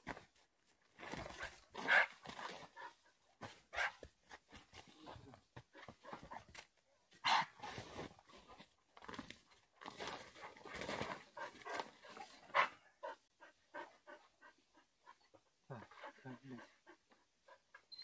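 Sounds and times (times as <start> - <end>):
dog panting: 10.3 - 17.9.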